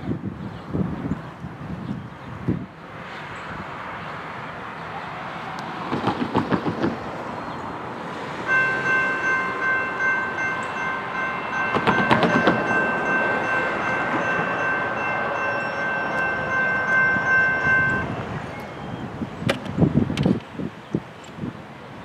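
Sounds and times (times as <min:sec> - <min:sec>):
freight train rumbling: 0:00.0 - 0:22.0
train clattering knocks: 0:05.9 - 0:07.1, 0:08.4 - 0:18.2.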